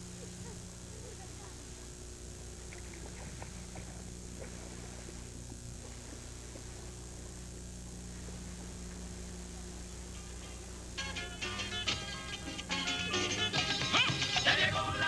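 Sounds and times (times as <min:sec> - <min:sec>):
faint ticks: 0:00.0 - 0:11.0
electrical mains hum: 0:00.0 - 0:15.0.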